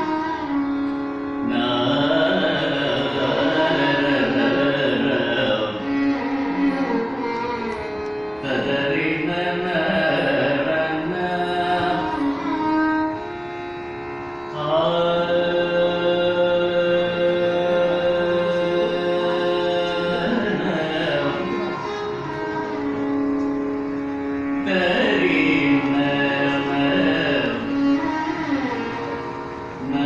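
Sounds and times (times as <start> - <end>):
violin: 0.0 - 30.0
man singing: 1.4 - 6.1, 8.4 - 12.6, 14.5 - 21.9, 24.6 - 28.2, 29.8 - 30.0.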